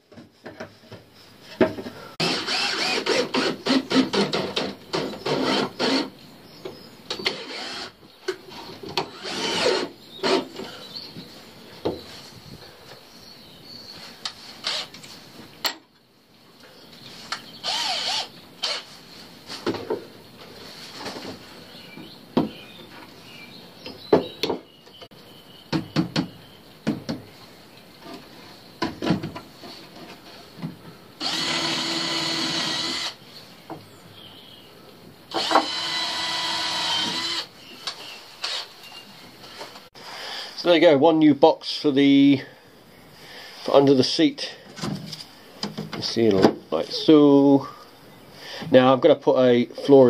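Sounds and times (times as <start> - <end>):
wood and tools clattering: 0.0 - 12.1, 19.5 - 23.2, 28.0 - 33.8, 44.6 - 46.6
cordless drill running: 2.2 - 4.0, 7.3 - 8.0, 9.1 - 10.4, 14.6 - 14.9, 17.6 - 18.9, 31.2 - 33.2, 35.3 - 37.5.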